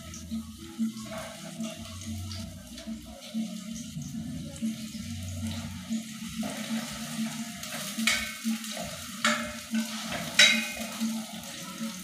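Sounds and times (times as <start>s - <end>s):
onions sizzling in oil: 0.0s - 12.0s
spatula knocking on metal pot: 8.0s - 11.1s.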